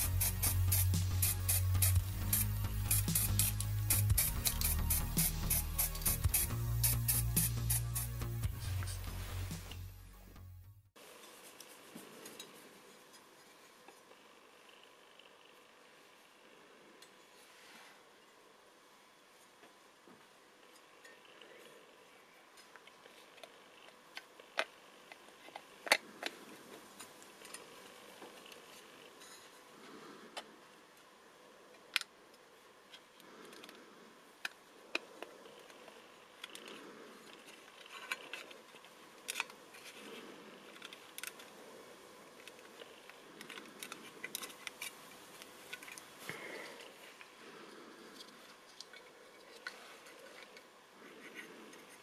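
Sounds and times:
soft rubbing of plastic parts: 0:11.1 - 0:18.5, 0:19.1 - 0:52.0.

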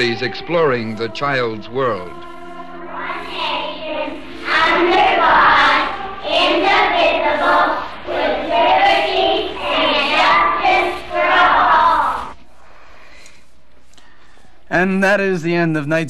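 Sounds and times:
children singing together: 0:00.0 - 0:12.4.

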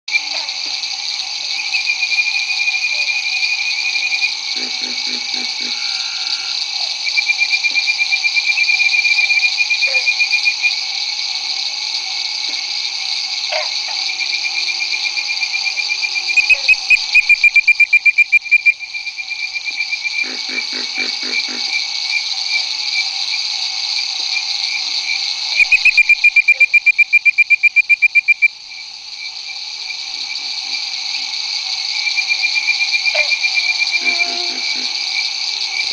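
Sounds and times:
frogs grunting: 0:00.1 - 0:18.7, 0:19.4 - 0:35.9
insects and frogs chorus: 0:00.1 - 0:35.9
treefrogs whistling: 0:01.5 - 0:10.8, 0:13.5 - 0:21.7, 0:25.4 - 0:28.8, 0:32.0 - 0:35.9.

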